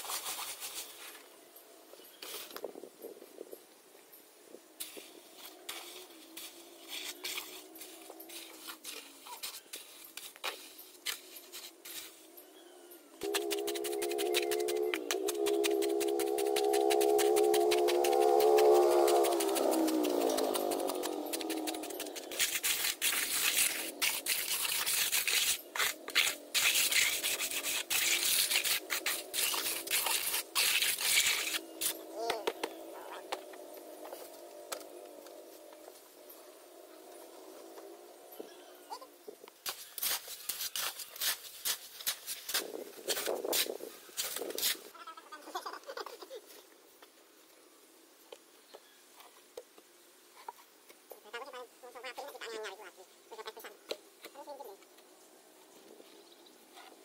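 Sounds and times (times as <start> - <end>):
metal trowel scraping sand mix: 4.8 - 12.6, 13.2 - 18.2, 19.3 - 32.0, 39.6 - 44.9.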